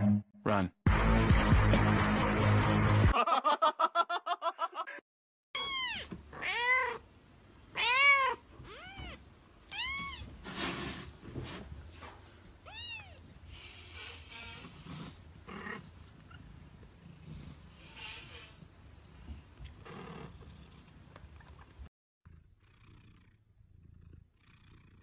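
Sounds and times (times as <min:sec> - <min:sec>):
kitten mewing: 0:05.6 - 0:07.0, 0:07.7 - 0:10.3.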